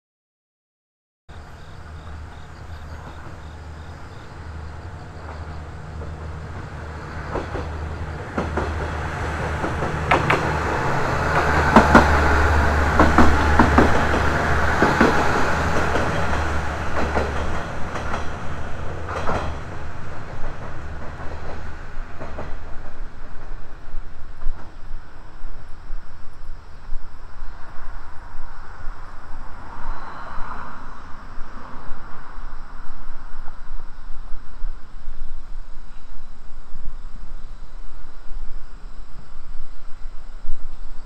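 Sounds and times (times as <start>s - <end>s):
diesel engine drone: 1.3s - 20.4s
train wheels clacking over rail joints: 5.2s - 23.6s.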